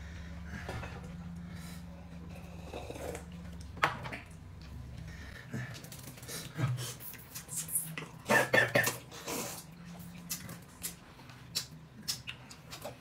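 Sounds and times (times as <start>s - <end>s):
low hum: 0.0s - 6.7s.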